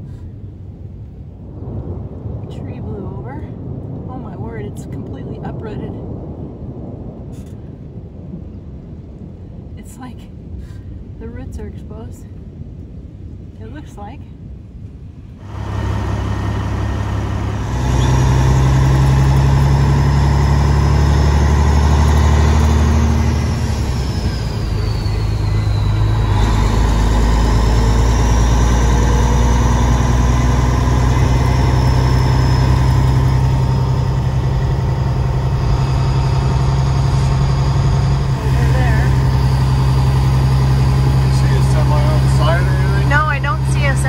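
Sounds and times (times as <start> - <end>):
diesel truck engine running: 15.4 - 44.0.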